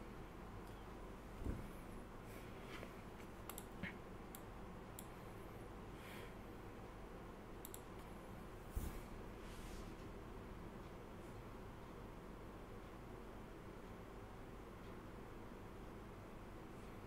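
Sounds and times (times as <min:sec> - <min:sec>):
low electrical hum: 0:00.0 - 0:17.0
sharp clicks: 0:03.4 - 0:05.1, 0:07.6 - 0:08.1.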